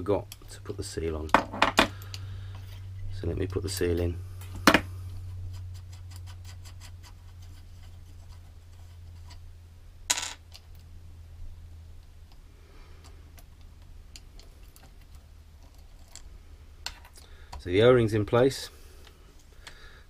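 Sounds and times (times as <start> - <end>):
steady low hum: 0.0 - 20.0
small parts clicking and tapping: 0.2 - 2.8, 10.1 - 10.9, 13.0 - 17.7, 19.0 - 19.8.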